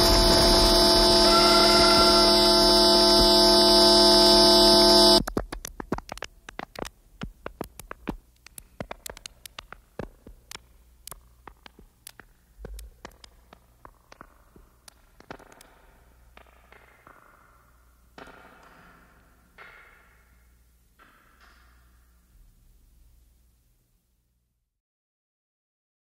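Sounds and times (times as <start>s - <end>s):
dense electronic chord with hiss: 0.0s - 5.2s
sharp clicks: 5.2s - 15.7s.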